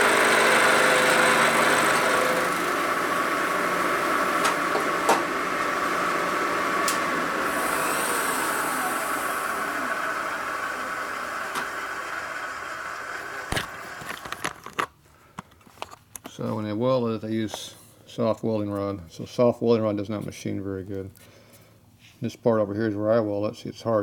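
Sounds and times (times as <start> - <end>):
milling machine whining: 0.0 - 14.8.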